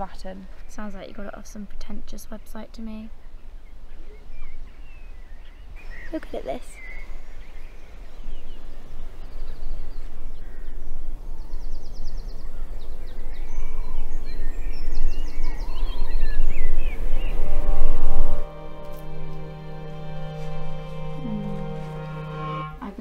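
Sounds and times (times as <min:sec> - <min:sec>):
songbirds chirping: 0:00.0 - 0:23.0
high bird trills: 0:03.0 - 0:23.0
steady low rumble: 0:07.0 - 0:23.0.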